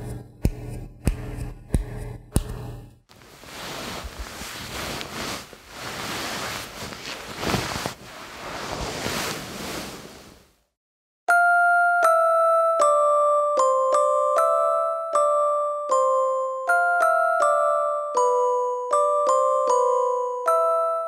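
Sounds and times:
glockenspiel melody: 11.3 - 21.0.

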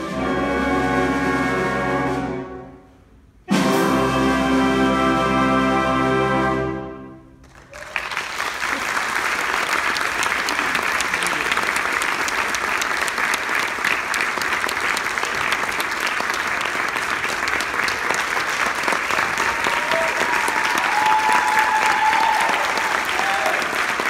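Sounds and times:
audience applauding: 7.4 - 24.0
people cheering: 7.5 - 24.0.

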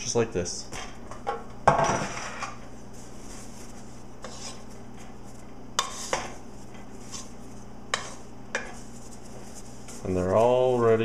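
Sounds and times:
steady low hum: 0.0 - 11.0
wooden spoon stirring in pot: 2.2 - 11.0.

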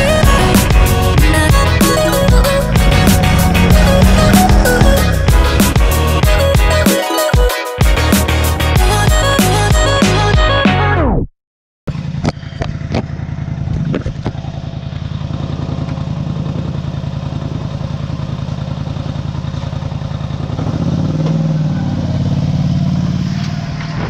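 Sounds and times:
atv engine idling: 0.0 - 6.8, 11.9 - 22.2.

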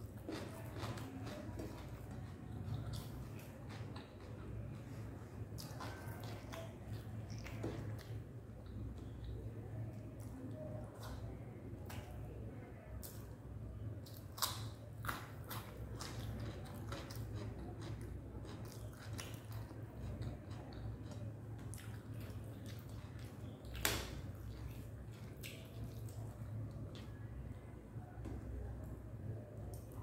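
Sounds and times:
person chewing food: 0.0 - 9.5, 14.0 - 27.2.

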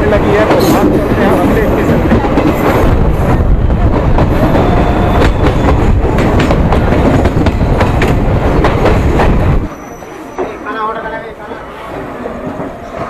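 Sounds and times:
train rumbling at speed: 0.0 - 13.0.

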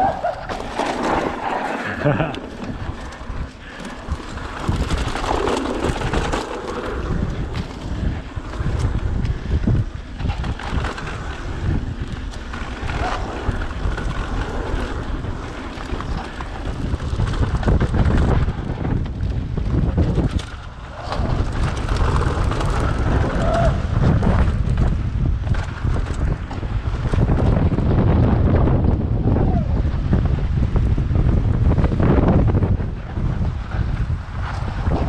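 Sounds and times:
bike knocking and rattling: 0.0 - 35.0
bike tyres rumbling on dirt: 0.0 - 35.0
wind buffeting microphone: 0.0 - 35.0.

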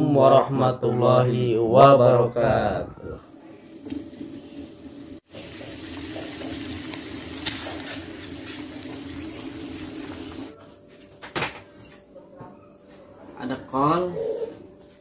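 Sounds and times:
water boiling in pot: 3.2 - 10.6.

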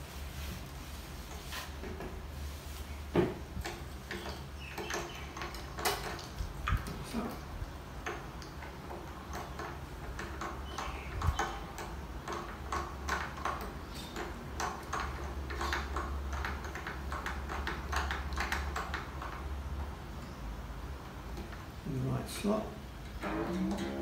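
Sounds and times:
low steady hum: 19.8 - 24.0.

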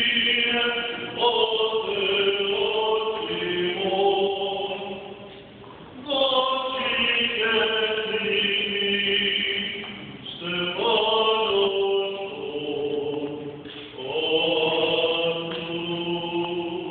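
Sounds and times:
voices chanting liturgy: 0.0 - 5.3, 6.0 - 16.9.

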